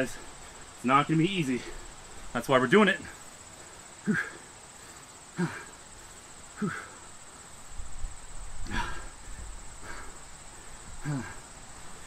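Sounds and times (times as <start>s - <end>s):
crickets trilling: 0.0s - 12.0s
man grunting and groaning: 4.0s - 4.5s, 5.3s - 5.8s, 6.6s - 7.0s, 8.6s - 9.1s, 11.0s - 11.5s.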